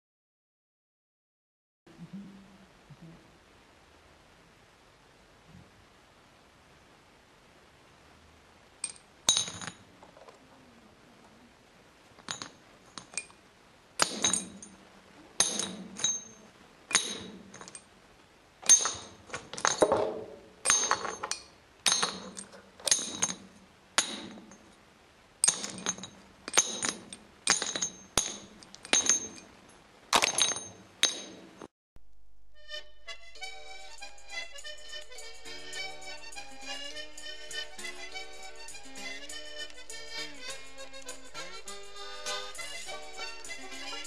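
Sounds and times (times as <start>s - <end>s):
metal hook clinking on stone: 8.8s - 9.8s, 12.2s - 13.4s, 14.0s - 14.8s, 15.4s - 17.9s, 18.6s - 24.8s, 25.4s - 31.6s.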